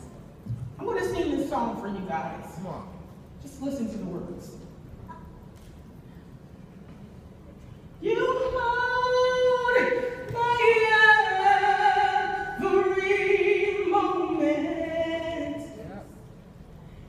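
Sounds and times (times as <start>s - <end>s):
woman singing gospel unaccompanied: 8.0s - 15.8s.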